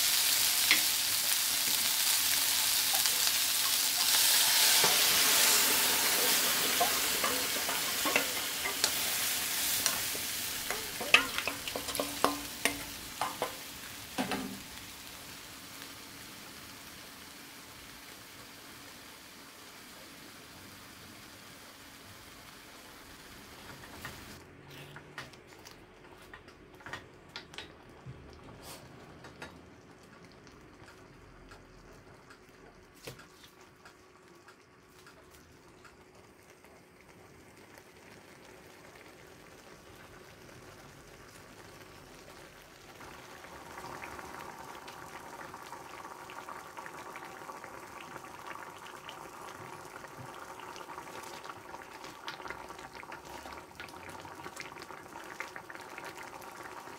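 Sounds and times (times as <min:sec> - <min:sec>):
sauce bubbling and popping: 0:00.5 - 0:15.0, 0:42.4 - 0:56.9
spatula knocking on pan: 0:10.7 - 0:13.6.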